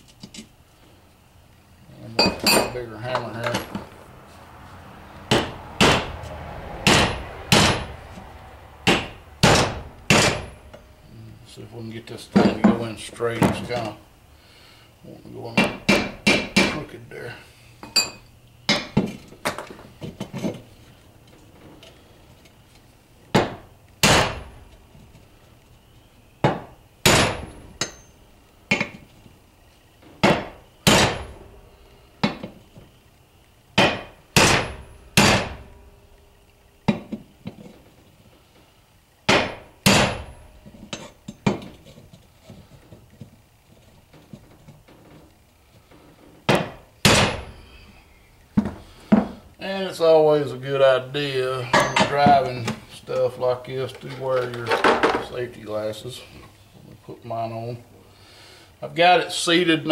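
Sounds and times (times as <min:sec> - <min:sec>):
hammer striking metal: 0:05.3 - 0:06.2, 0:06.8 - 0:08.1, 0:08.8 - 0:10.8, 0:26.4 - 0:28.9, 0:30.2 - 0:31.5, 0:33.8 - 0:35.9, 0:39.3 - 0:41.5, 0:46.5 - 0:47.6.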